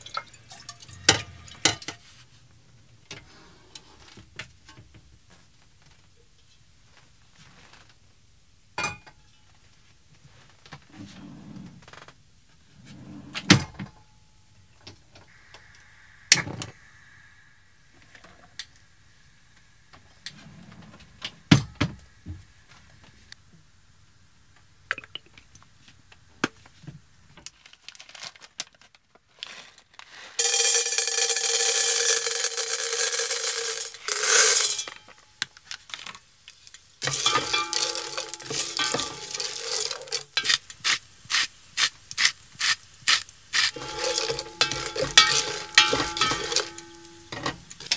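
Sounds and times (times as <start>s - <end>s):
popcorn kernels rattling into pot: 30.4s - 35.0s, 35.7s - 47.9s
wooden spoon stirring kernels: 30.4s - 35.0s, 37.0s - 47.9s
pot ringing: 30.4s - 35.2s, 37.0s - 40.4s, 43.7s - 47.9s.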